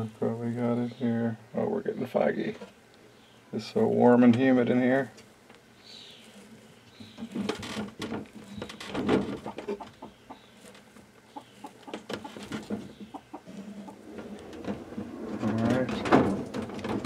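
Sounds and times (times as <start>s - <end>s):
chickens clucking: 5.8s - 17.0s
hand rustling through dry hay: 6.0s - 6.9s.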